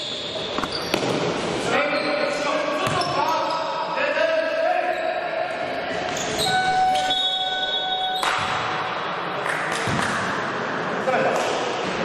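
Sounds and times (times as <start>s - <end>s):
basketball bouncing indoors: 2.8s - 3.2s
high-pitched squeaky tone: 6.4s - 8.2s.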